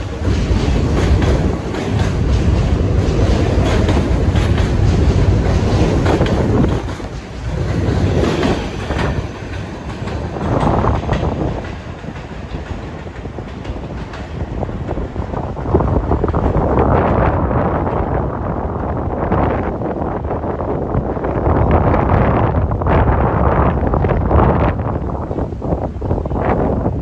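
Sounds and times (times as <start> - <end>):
wheels clattering over rail joints: 0.0 - 18.2
subway train rumbling: 0.0 - 27.0.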